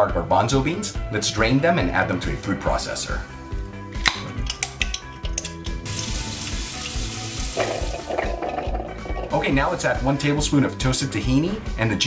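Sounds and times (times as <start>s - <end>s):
background music with steady beat: 0.0s - 12.0s
glass jar clicks: 4.0s - 5.8s, 7.6s - 9.5s
tap water running into strainer: 5.8s - 9.6s.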